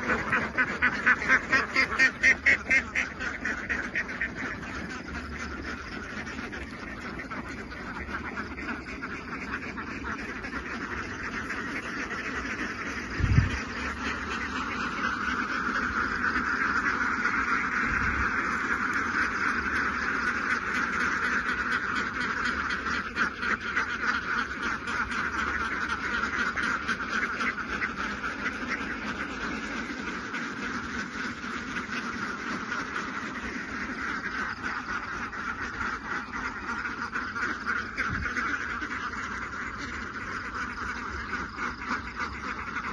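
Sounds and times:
flock of ducks quacking: 0.0s - 42.9s.

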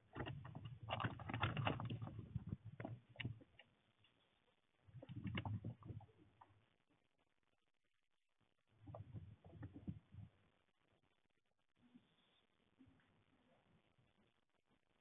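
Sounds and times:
rodent scrabbling and rustling: 0.0s - 3.8s, 4.9s - 6.6s.

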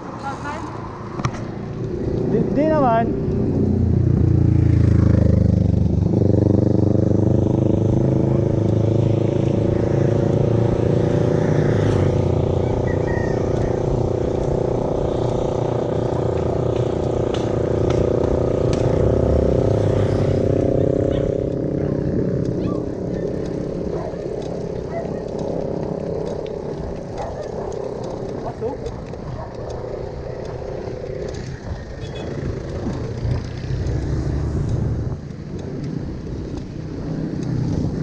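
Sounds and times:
vehicle engine droning: 0.0s - 38.0s.

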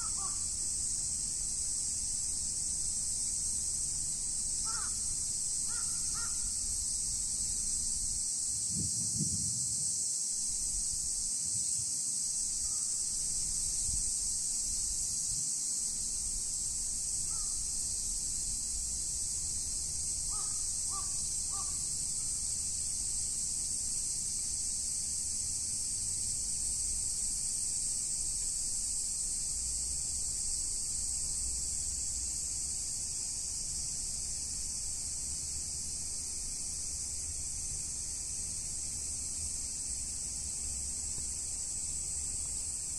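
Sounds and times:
crow cawing: 0.0s - 0.5s, 4.6s - 5.1s, 5.7s - 6.5s, 17.3s - 17.6s, 20.3s - 21.8s
high-pitched insect chorus: 0.0s - 42.9s.

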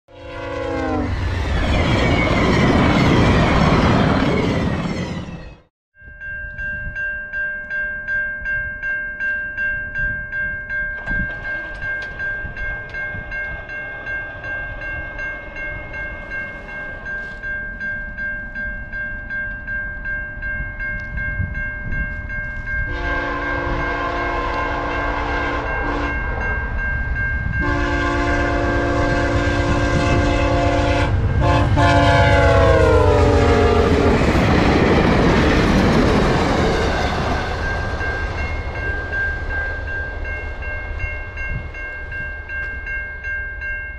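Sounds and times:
locomotive horn blasts: 0.1s - 1.2s, 22.9s - 26.5s, 27.6s - 34.2s
level crossing bell ringing: 6.0s - 29.5s
train wheels clacking on rails: 10.9s - 18.0s, 27.6s - 42.9s.

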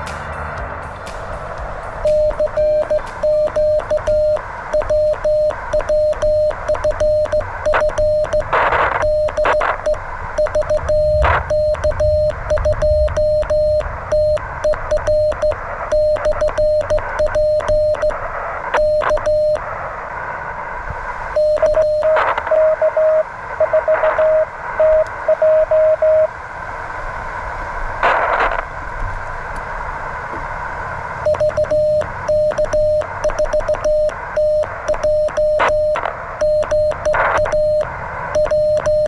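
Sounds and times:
radio band hiss: 0.0s - 26.4s, 27.4s - 30.5s, 31.2s - 39.0s
morse code sidetone: 2.0s - 19.6s, 21.3s - 26.3s, 31.2s - 39.0s
morse code keying over radio: 2.0s - 19.7s, 21.4s - 26.3s, 31.3s - 39.0s
static crash: 10.7s - 14.9s, 28.0s - 28.7s.

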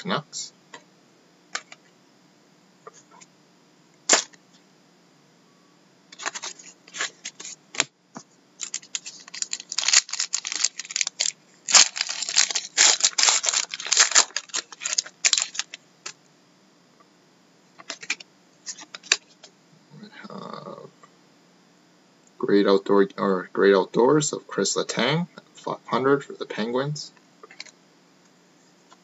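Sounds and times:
foil wrapper tearing and crinkling: 8.6s - 15.8s.

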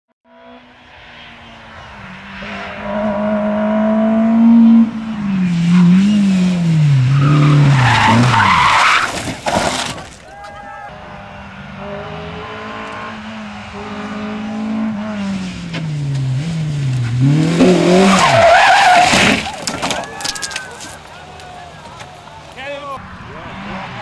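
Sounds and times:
car engine at high revs: 0.3s - 8.6s, 11.0s - 19.3s
tyres skidding: 1.0s - 24.0s.

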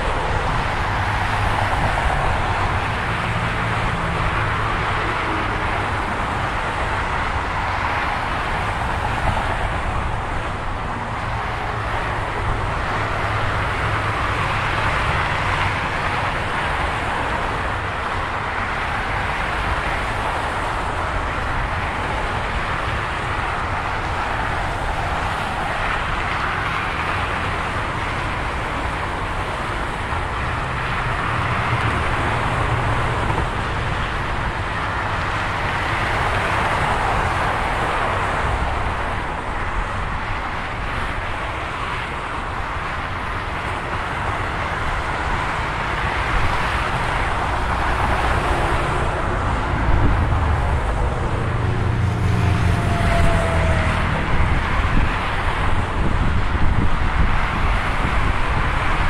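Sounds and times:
vehicles passing at speed: 0.0s - 59.0s
low engine hum: 46.4s - 58.9s.

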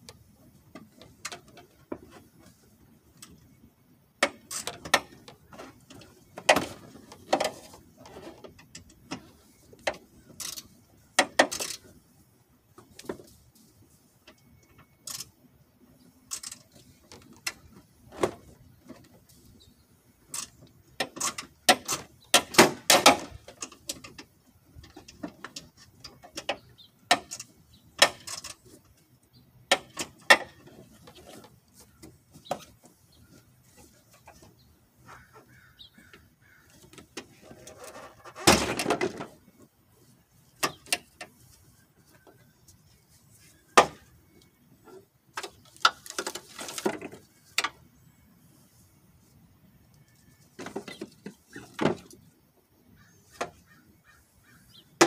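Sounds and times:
clicks and knocks on car parts: 4.2s - 11.8s, 20.3s - 28.8s, 29.7s - 33.0s, 43.7s - 44.4s.

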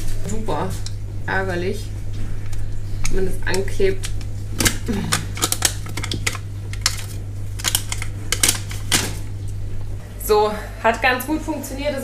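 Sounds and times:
steady low hum: 0.0s - 12.0s
glue trap clicks and crinkles: 4.0s - 9.1s.

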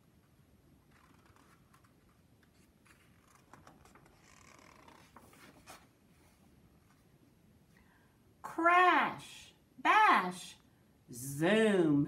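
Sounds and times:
paper page rustling: 0.9s - 7.0s.

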